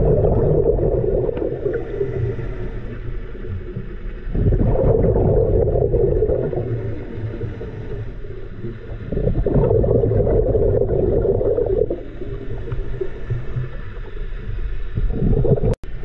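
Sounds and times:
diver exhalation bubbling underwater: 0.0s - 1.8s, 4.4s - 6.7s, 9.1s - 12.0s, 15.0s - 15.8s.

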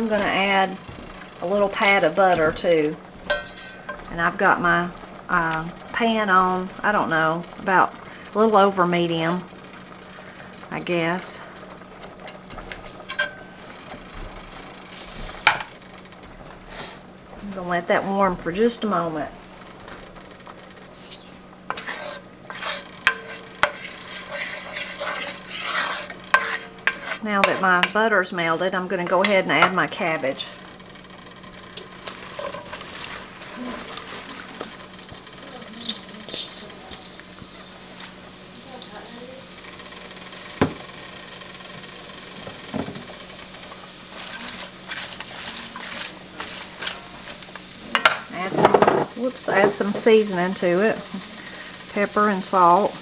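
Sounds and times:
spoon scraping pan: 0.0s - 7.8s, 12.0s - 14.1s, 19.6s - 38.2s, 43.0s - 52.9s
fat sizzling in skillet: 0.0s - 53.0s
cabbage leaves rustling and crunching: 44.1s - 47.2s.

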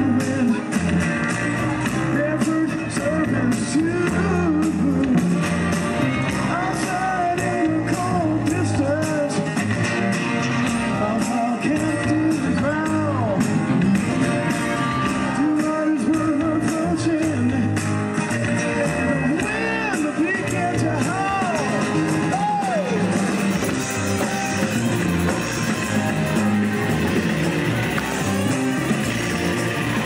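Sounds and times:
man singing: 0.0s - 1.1s, 2.0s - 5.5s, 6.2s - 9.8s, 10.9s - 13.6s, 15.3s - 23.2s
electric guitar: 0.0s - 30.0s
steady drum beat: 19.4s - 30.0s.

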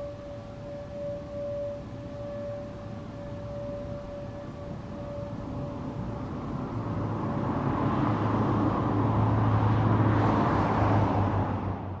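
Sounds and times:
faint steady tone: 0.0s - 9.2s
vehicle engine and tyre noise: 4.8s - 12.0s.

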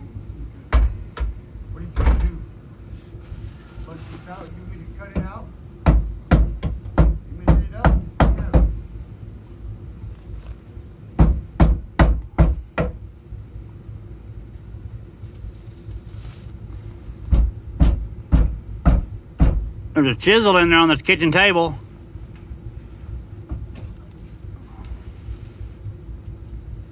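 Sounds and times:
hammer striking wood: 5.8s - 8.8s, 11.2s - 13.0s, 17.3s - 19.6s.

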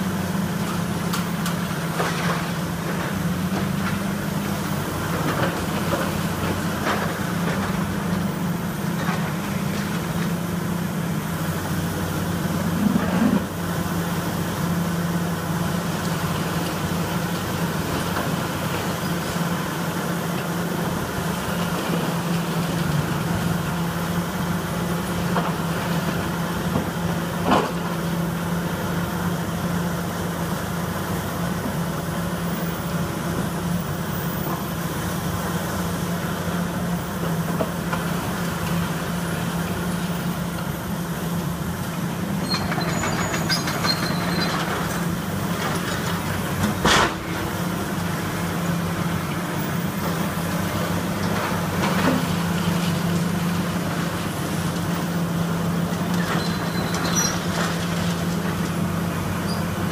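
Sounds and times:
excavator diesel engine: 0.0s - 59.9s
debris crashing and clattering: 56.0s - 58.8s.

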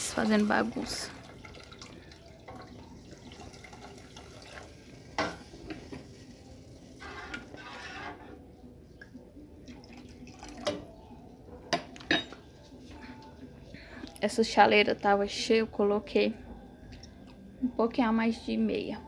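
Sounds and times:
water pouring into pot: 0.0s - 5.2s, 9.7s - 10.8s.

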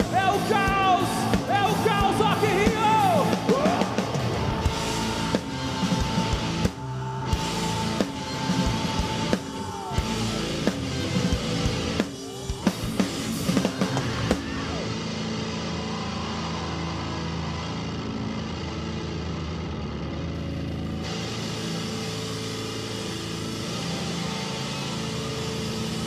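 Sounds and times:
drum hits and fills: 0.0s - 14.8s
crowd cheering: 0.0s - 26.0s
live rock band: 0.0s - 26.0s.

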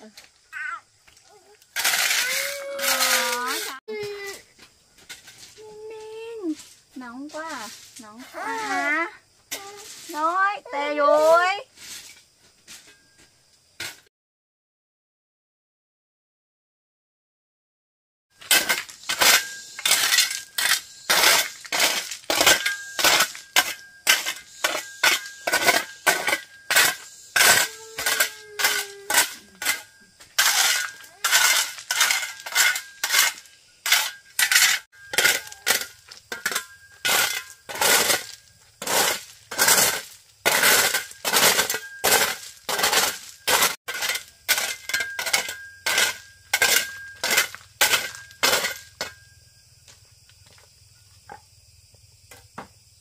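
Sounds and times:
sharp clinking knocks: 18.4s - 49.4s.

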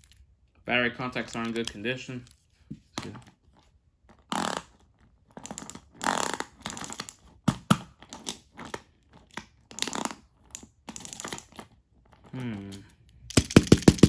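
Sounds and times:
plastic toy scraping and rustling: 1.0s - 7.4s, 8.0s - 12.5s.

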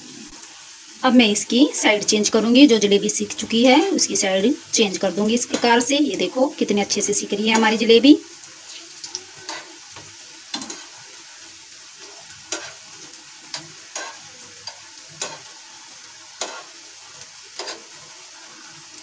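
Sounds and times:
batter sizzling in hot oil: 0.0s - 19.0s
metal tongs clicking against pan: 7.5s - 7.8s, 13.5s - 15.5s, 16.4s - 16.7s, 17.6s - 17.8s.

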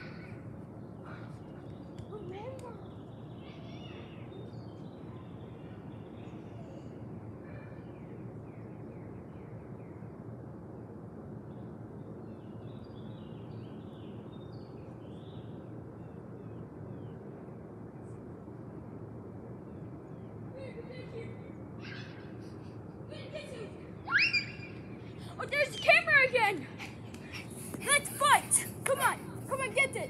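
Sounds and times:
birds chirping: 0.0s - 18.8s, 19.4s - 30.0s
outdoor background noise: 0.0s - 30.0s.

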